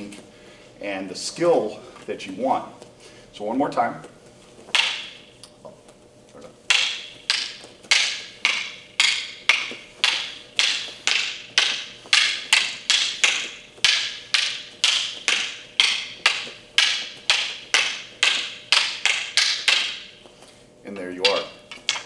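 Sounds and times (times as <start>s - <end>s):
wooden sticks clacking together: 4.7s - 5.2s, 6.7s - 20.2s, 21.2s - 22.0s.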